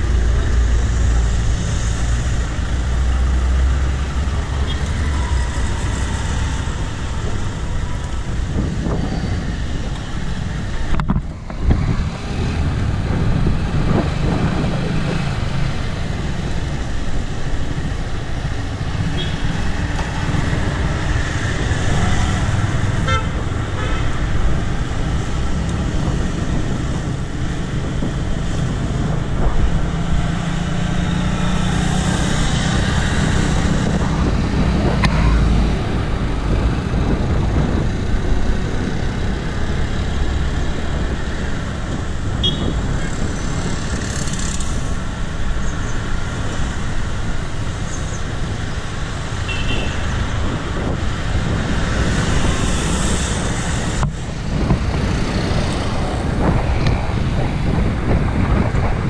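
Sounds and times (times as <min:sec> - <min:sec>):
cars passing on road: 0:00.0 - 0:59.0
vehicle horn tooting: 0:23.0 - 0:24.1, 0:42.4 - 0:42.8, 0:49.5 - 0:50.0.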